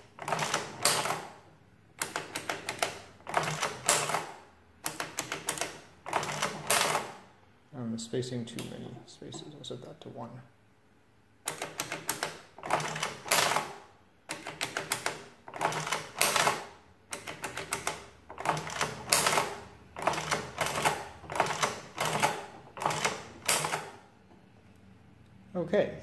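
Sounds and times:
adding machine clacking and ratcheting: 4.9 - 7.2, 14.3 - 24.0.

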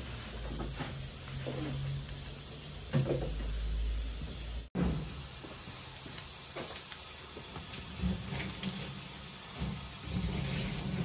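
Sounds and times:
high hiss: 0.0 - 11.0.

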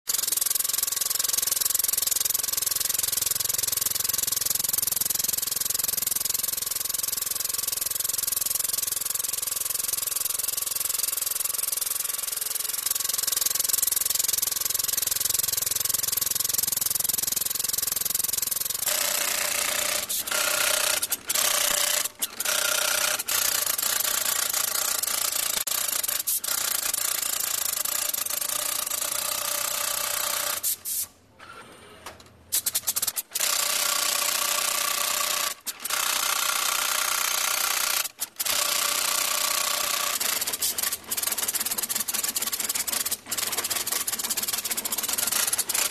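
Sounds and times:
tufting gun rasping buzz: 18.7 - 26.8.

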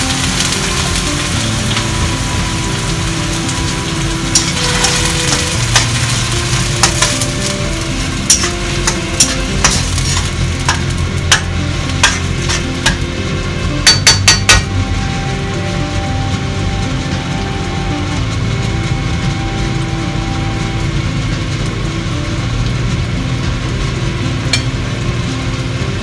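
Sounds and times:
sauce sizzling in a wok: 0.0 - 26.0
spatula knocking and scraping pan: 4.3 - 13.2, 13.8 - 14.7.

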